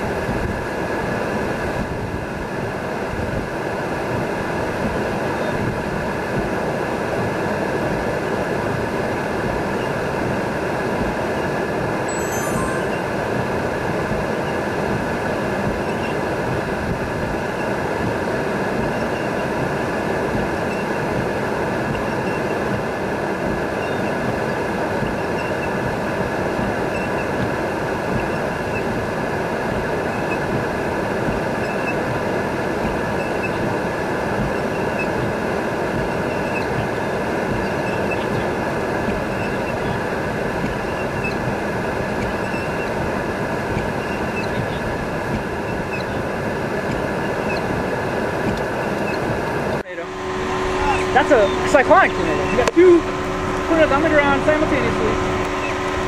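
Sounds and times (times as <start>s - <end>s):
wind: 0.0s - 56.0s
rain on a windshield: 14.1s - 49.8s
windshield wipers running: 32.8s - 56.0s
road rumble: 42.8s - 56.0s.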